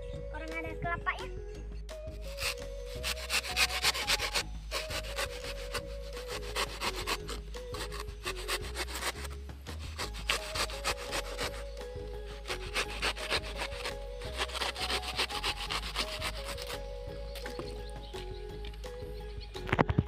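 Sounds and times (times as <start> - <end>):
faint background music: 0.0 - 20.0
knife scraping coconut shell: 2.2 - 17.8.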